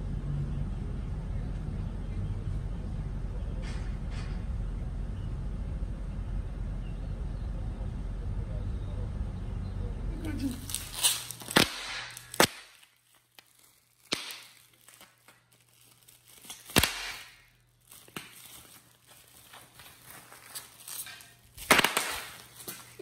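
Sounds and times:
faint low hum: 0.0 - 11.5
rustling: 10.3 - 23.0.

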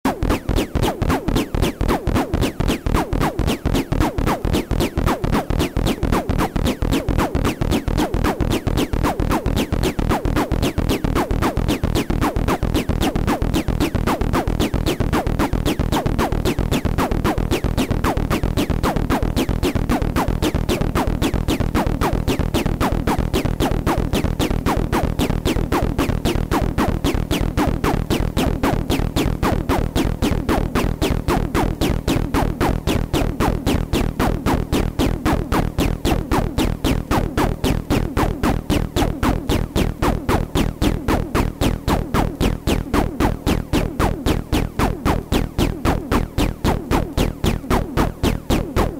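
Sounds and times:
analog synthesizer electronic music: 0.1 - 48.9.

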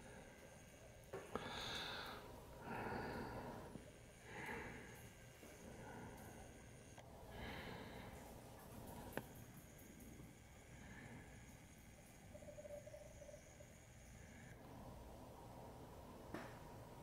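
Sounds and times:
soft breathing: 0.0 - 13.3.

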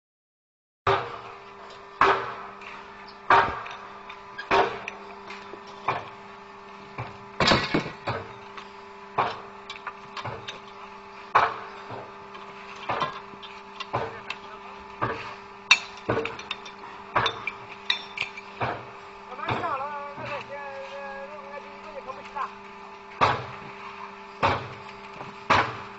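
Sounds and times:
steady low hum: 0.9 - 25.9.

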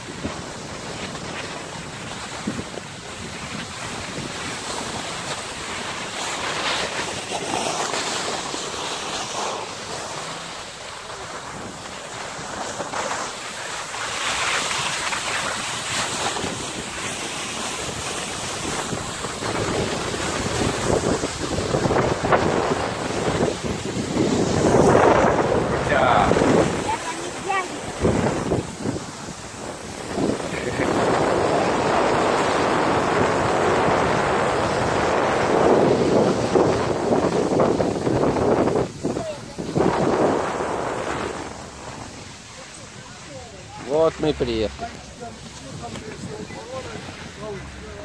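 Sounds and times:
skis hissing on snow: 0.1 - 48.0
wind buffeting microphone: 14.3 - 48.0.

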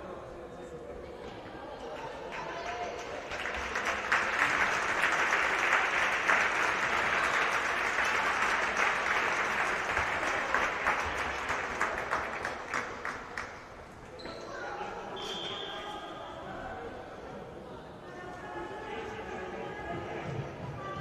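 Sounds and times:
spectators clapping: 2.2 - 14.0.

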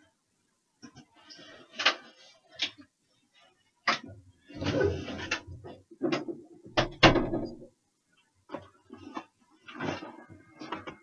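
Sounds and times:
knocks and thumps: 5.9 - 7.7.

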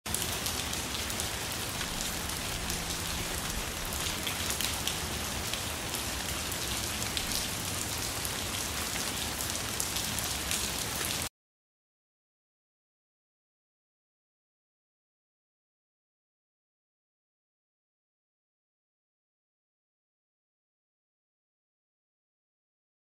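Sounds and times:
rain pattering on surfaces: 0.1 - 11.3.

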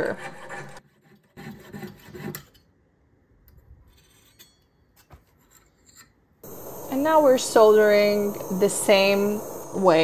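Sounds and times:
jeweller's saw scraping metal: 0.0 - 2.7.

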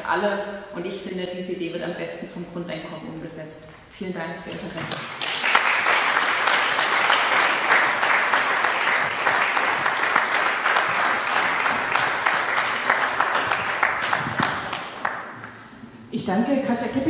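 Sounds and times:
audience applauding: 4.9 - 15.6.

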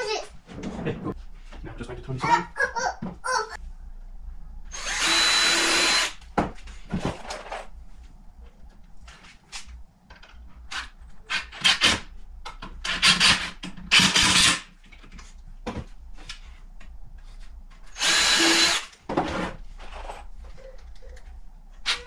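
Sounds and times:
power drill bursts: 4.7 - 6.2, 13.9 - 14.6, 18.0 - 18.9.

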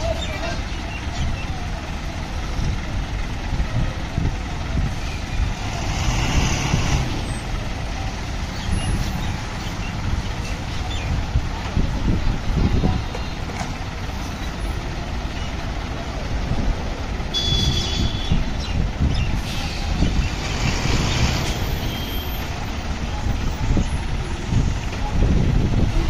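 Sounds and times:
heavy vehicle engines rumbling: 0.0 - 26.0.

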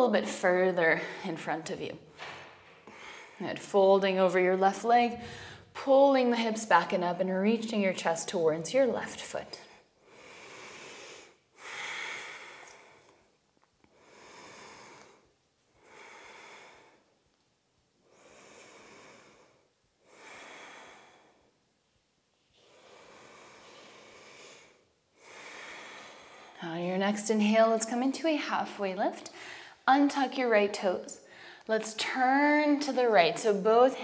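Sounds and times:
woman breathing slowly: 0.9 - 1.5, 2.2 - 3.4, 5.1 - 5.8, 9.6 - 27.0, 29.2 - 29.9, 31.2 - 31.7.

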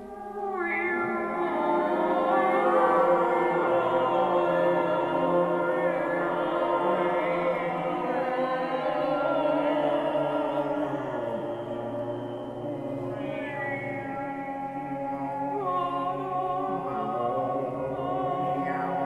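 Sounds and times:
wordless choir-like voices: 0.0 - 19.0.

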